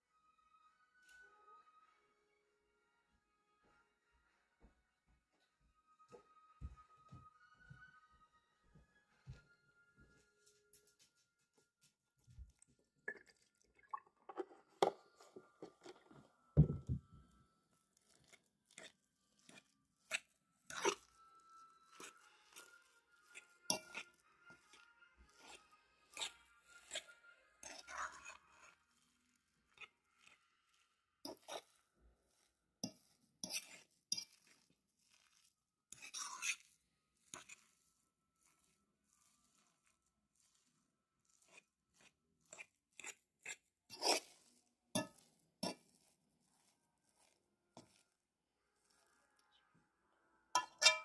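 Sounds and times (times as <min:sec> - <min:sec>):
wet squishing of mashed potatoes: 0:11.8 - 0:17.0, 0:17.6 - 0:49.7
metal clinking against pot: 0:50.6 - 0:51.0.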